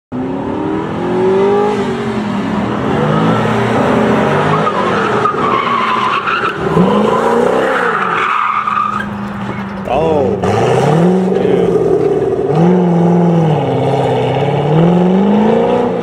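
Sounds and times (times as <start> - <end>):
tyres squealing: 4.5 - 10.4
sports car engine revving: 9.1 - 16.0.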